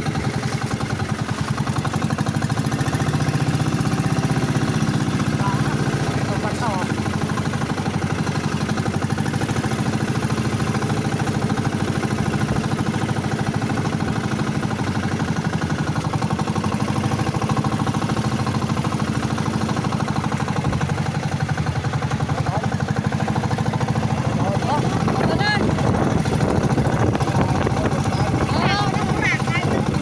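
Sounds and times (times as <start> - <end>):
boat engine pulsing: 0.0 - 30.0
water splashing along hull: 0.0 - 30.0.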